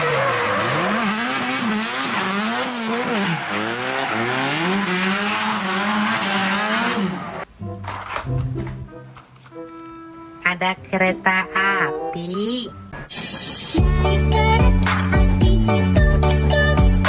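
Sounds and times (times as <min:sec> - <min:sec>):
car engine revving: 0:00.0 - 0:07.5.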